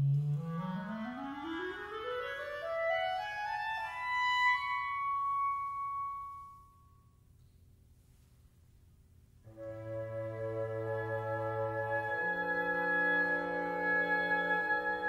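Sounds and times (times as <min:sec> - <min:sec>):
woodwinds playing slow line: 0:09.5 - 0:15.0.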